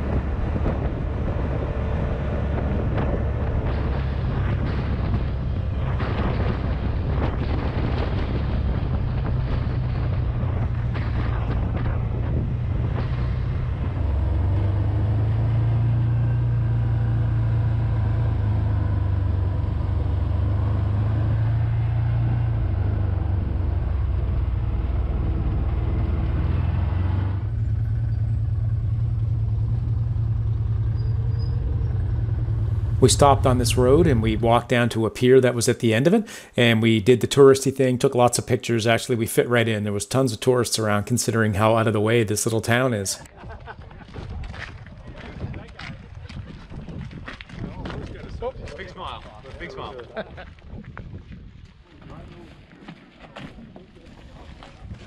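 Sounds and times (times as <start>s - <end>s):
vehicle engine running: 0.0s - 35.1s
wind and road noise: 0.0s - 55.0s.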